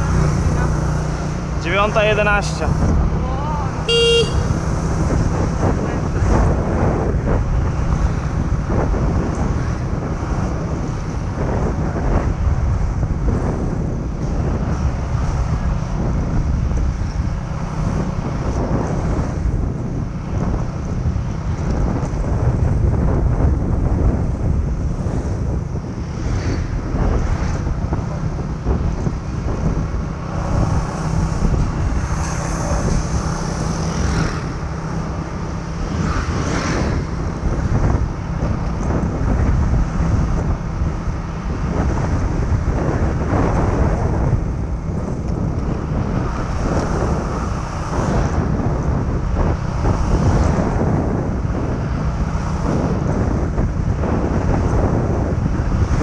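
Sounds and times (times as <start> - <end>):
scooter engine running: 0.0 - 1.6
wind buffeting microphone: 0.0 - 56.0.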